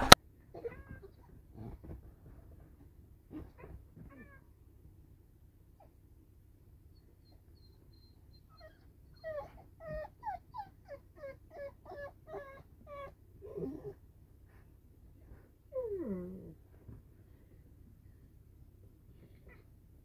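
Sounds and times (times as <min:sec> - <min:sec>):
puppy whimpering: 0:06.9 - 0:14.0, 0:15.7 - 0:16.6.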